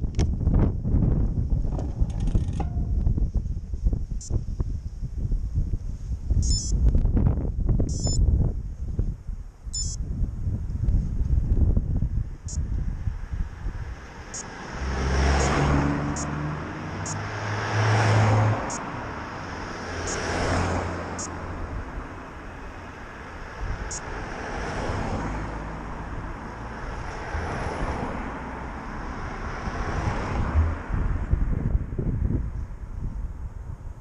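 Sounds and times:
low traffic rumble: 0:00.0 - 0:34.0
cars passing: 0:11.6 - 0:34.0.

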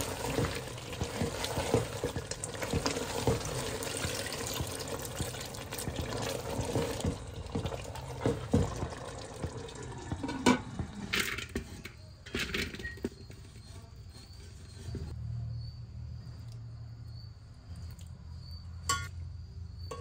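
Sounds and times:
water pouring into pot: 0:00.0 - 0:11.5
stirring: 0:00.0 - 0:12.1.

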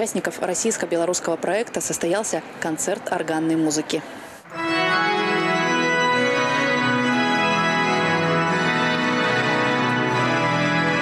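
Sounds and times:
pipe organ playing sustained chords: 0:04.4 - 0:11.0.

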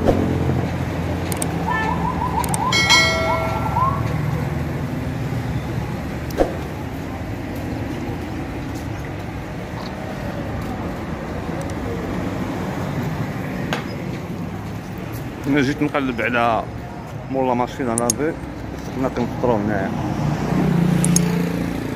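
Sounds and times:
road traffic rumble: 0:00.0 - 0:21.9
short pitched tone: 0:01.7 - 0:04.4.

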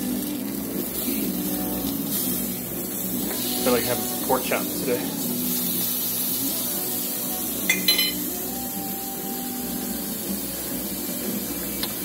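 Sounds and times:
meat sizzling on a grill: 0:00.0 - 0:12.0
fork clinking on grill grate: 0:07.7 - 0:08.2.

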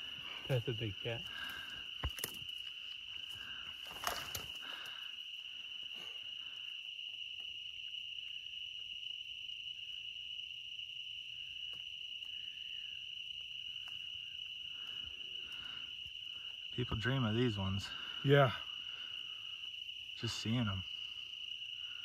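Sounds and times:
crickets trilling: 0:00.0 - 0:22.0.

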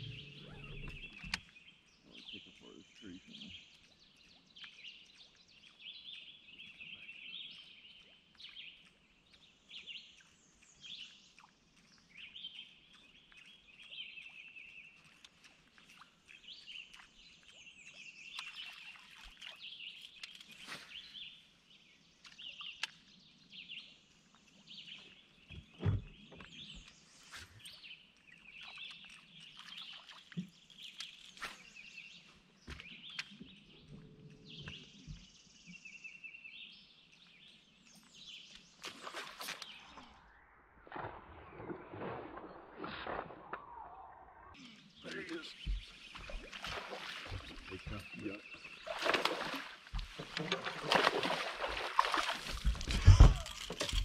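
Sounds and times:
birds chirping and singing: 0:00.0 - 0:21.4, 0:44.5 - 0:54.0.

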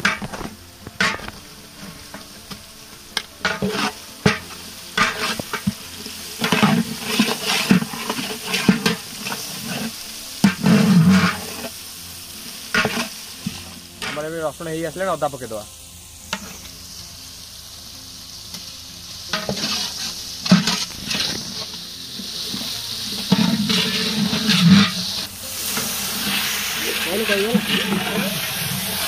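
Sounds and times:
spatula stirring pan: 0:00.0 - 0:14.3, 0:16.3 - 0:16.7, 0:18.4 - 0:29.0
onions sizzling in oil: 0:00.0 - 0:29.0.

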